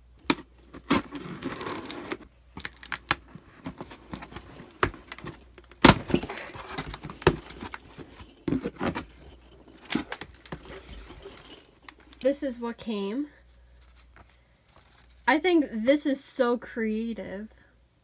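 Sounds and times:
tape tearing: 0:00.2 - 0:12.3
scissors cutting packing tape: 0:00.3 - 0:03.3.

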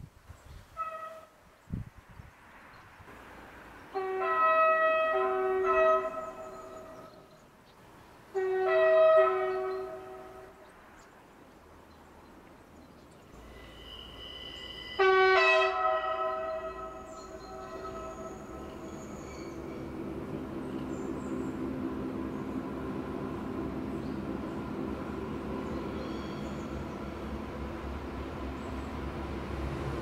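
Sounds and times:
train horn two-tone blasts: 0:00.7 - 0:01.4, 0:03.9 - 0:07.1, 0:08.3 - 0:10.6, 0:13.4 - 0:20.0
train running noise: 0:11.7 - 0:30.0.

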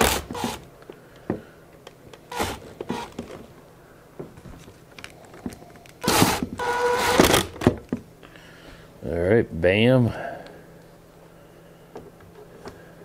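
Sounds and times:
cordless drill whining: 0:00.0 - 0:00.6, 0:02.3 - 0:03.2, 0:06.0 - 0:07.5.

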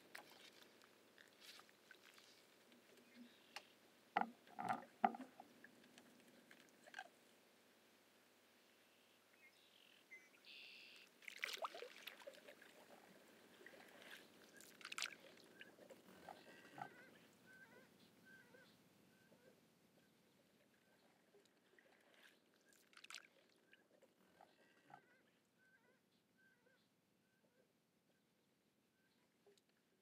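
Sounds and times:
paddle splashes and drips: 0:00.0 - 0:07.2, 0:10.8 - 0:17.6, 0:20.5 - 0:25.1.

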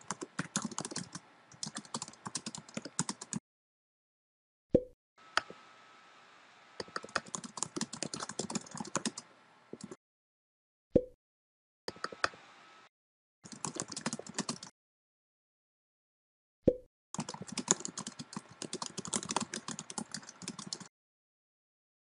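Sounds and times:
keyboard typing clicks: 0:13.5 - 0:14.7, 0:17.2 - 0:20.9.

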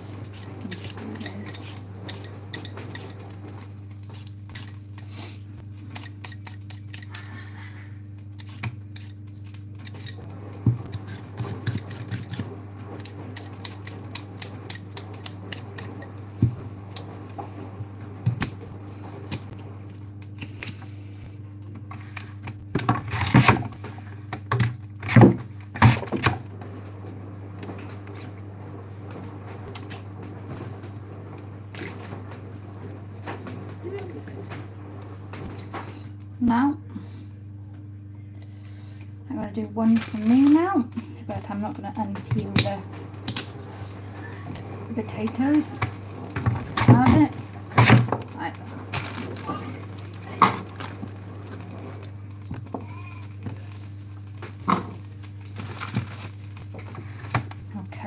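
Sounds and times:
vegetable peeler scraping potatoes: 0:08.4 - 0:10.3, 0:10.9 - 0:16.0.

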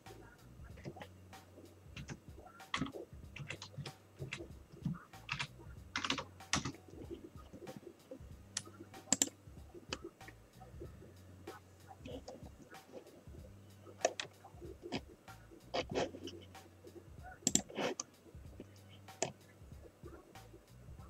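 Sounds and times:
typing on computer keyboard: 0:02.0 - 0:07.8, 0:08.6 - 0:09.4, 0:14.0 - 0:15.0, 0:17.4 - 0:18.1.

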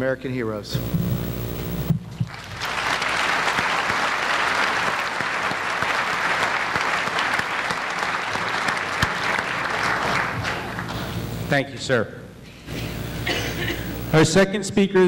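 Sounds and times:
audience applauding: 0:02.3 - 0:11.2.

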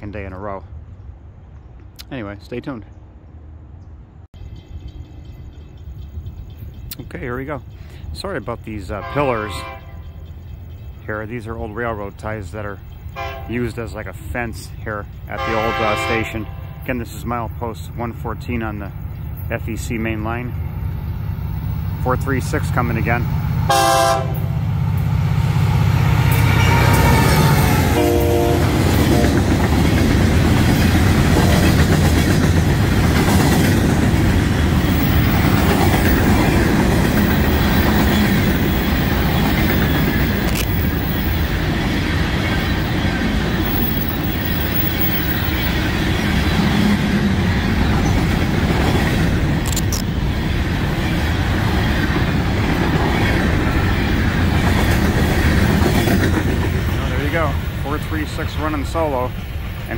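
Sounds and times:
train wheels clattering on rails: 0:24.9 - 0:59.8
sharp clicks: 0:40.2 - 0:41.0, 0:49.6 - 0:50.1.

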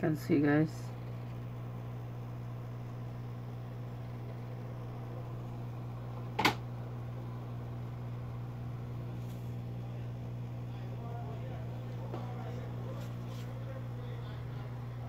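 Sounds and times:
hot air station blowing: 0:00.0 - 0:15.0
sharp click: 0:06.4 - 0:06.6.

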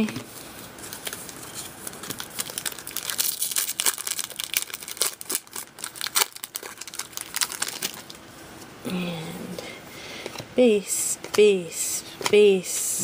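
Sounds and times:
foil wrapper crinkling: 0:00.8 - 0:08.2.

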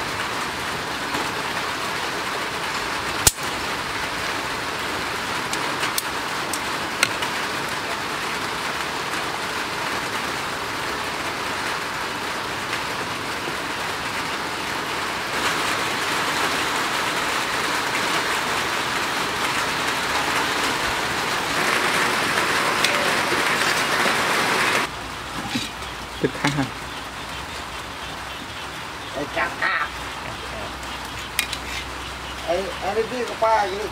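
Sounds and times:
sauce boiling and sizzling: 0:12.6 - 0:33.7.

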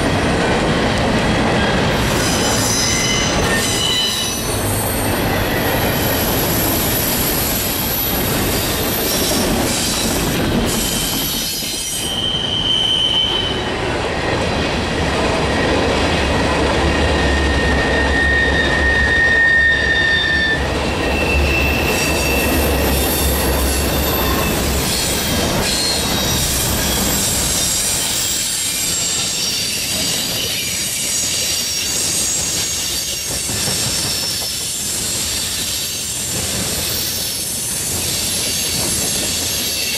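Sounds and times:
train wheels rumbling on rails: 0:00.0 - 0:39.9
high-pitched wheel squeals: 0:02.0 - 0:10.0, 0:10.7 - 0:14.3, 0:16.9 - 0:33.3.

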